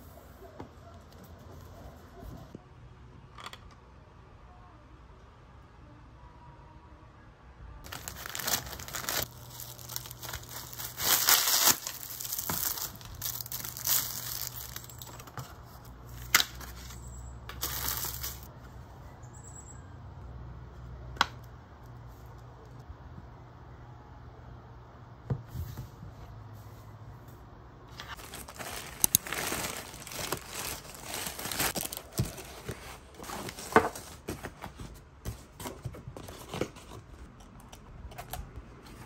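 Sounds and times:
plastic bag crinkling: 7.9s - 15.3s, 17.6s - 18.5s, 28.0s - 34.2s.

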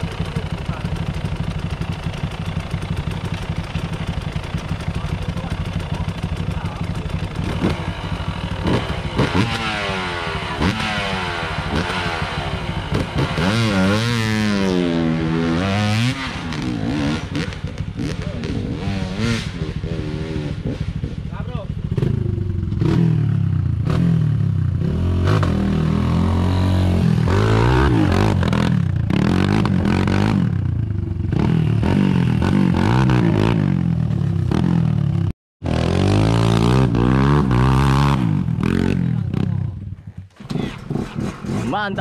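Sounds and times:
motorcycle engine idling: 0.0s - 15.3s, 19.6s - 24.8s, 29.8s - 32.6s
motorcycle engine revving: 0.0s - 42.0s.

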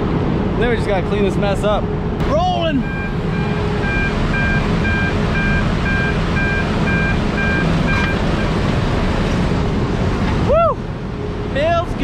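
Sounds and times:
electronic warning beeper: 2.3s - 8.6s.

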